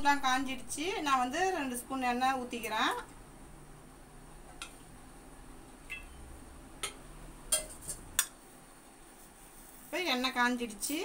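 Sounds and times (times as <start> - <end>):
low steady hum: 0.0 - 11.0
spoon clinking against metal pot: 6.8 - 8.4.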